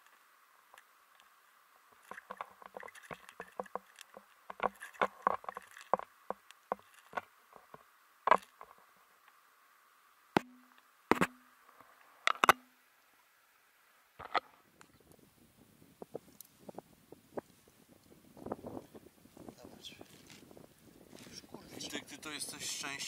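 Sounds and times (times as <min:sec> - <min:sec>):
underwater clicks and knocks: 0:02.0 - 0:08.7, 0:12.3 - 0:12.6.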